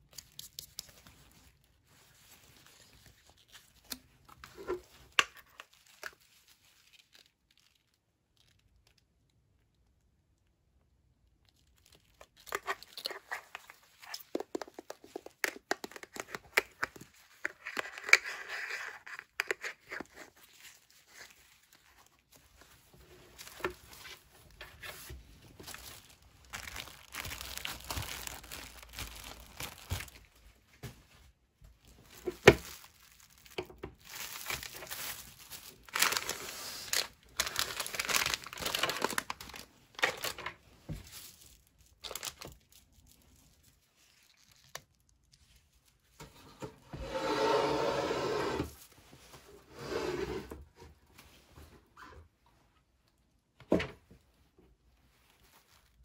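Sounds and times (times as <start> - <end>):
plastic bag crinkling: 0.0 - 9.3, 11.4 - 30.6, 31.8 - 46.2, 55.1 - 56.0.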